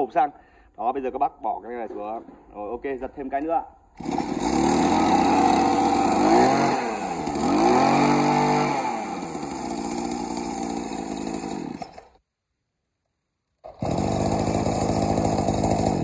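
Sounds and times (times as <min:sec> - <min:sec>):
brush cutter engine running: 0:04.0 - 0:12.1, 0:13.6 - 0:16.0.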